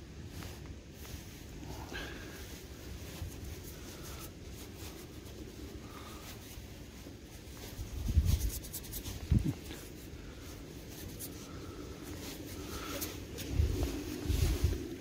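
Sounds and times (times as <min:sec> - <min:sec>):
fingers rubbing a coin: 0:08.2 - 0:09.2
low rumble: 0:12.6 - 0:15.0.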